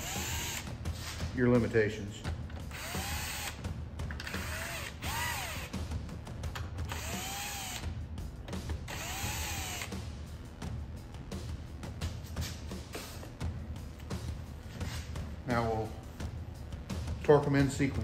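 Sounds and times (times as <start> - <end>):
cordless driver bursts: 0.0 - 0.7, 2.7 - 3.6, 4.2 - 5.7, 6.9 - 7.8, 8.9 - 9.9.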